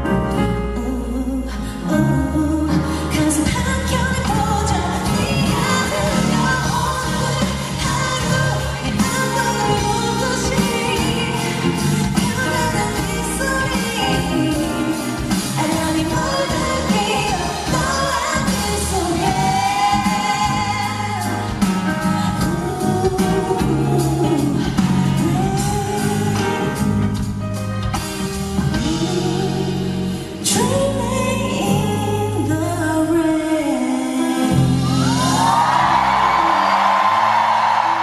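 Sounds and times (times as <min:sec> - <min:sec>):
amplified backing music with bass: 0:00.0 - 0:38.0
woman singing into microphone: 0:00.7 - 0:27.2, 0:28.8 - 0:36.0.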